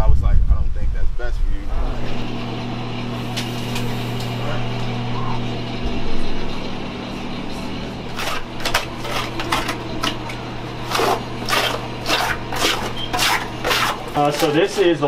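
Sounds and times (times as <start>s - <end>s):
low machine hum: 0.0s - 15.0s
wet wipes rustling and scraping: 11.6s - 15.0s.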